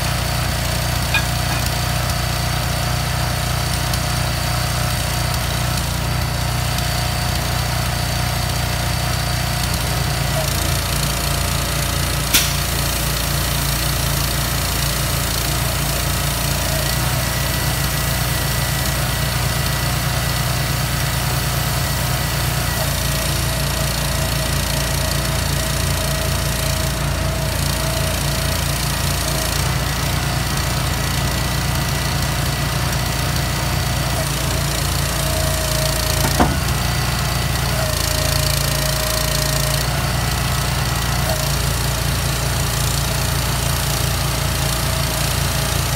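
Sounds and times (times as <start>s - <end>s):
diesel truck engine running: 0.0s - 45.9s
sharp click: 12.4s - 12.8s.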